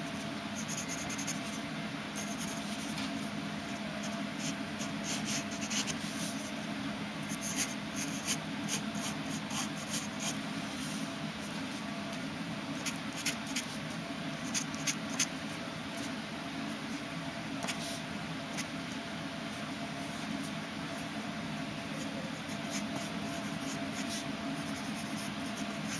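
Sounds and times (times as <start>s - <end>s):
steady low hum: 0.0s - 25.9s
pencil scratching on paper: 0.6s - 1.6s, 7.3s - 10.4s, 22.0s - 25.9s.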